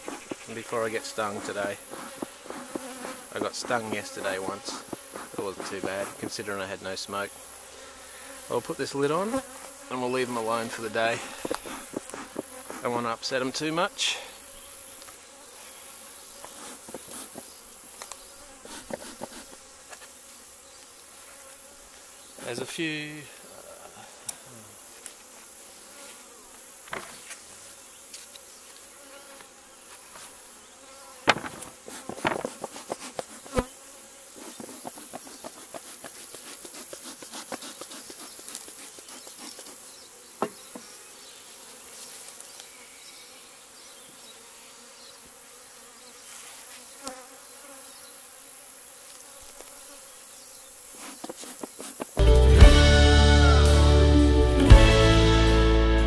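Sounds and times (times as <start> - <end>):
honeybees buzzing: 0.0 - 56.0
knocks from hive being handled: 1.4 - 6.4, 31.2 - 33.7, 40.4 - 40.9.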